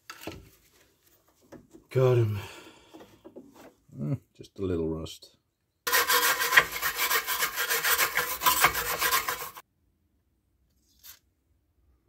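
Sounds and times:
wire brush scrubbing rust: 5.9s - 9.6s.

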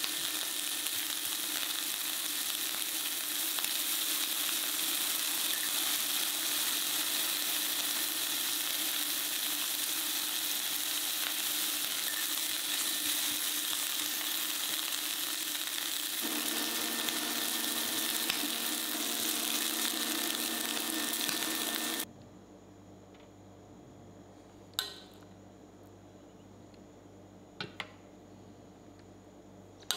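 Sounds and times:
meat sizzling in a frying pan: 0.0s - 22.1s.

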